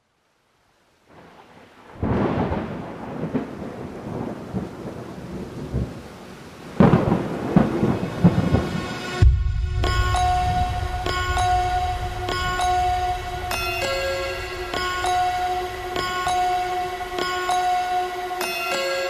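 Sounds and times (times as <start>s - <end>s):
rain: 0.0s - 19.0s
rumbling thunder: 1.2s - 6.1s, 6.7s - 16.3s
music with heavy beat and bells: 9.2s - 19.0s.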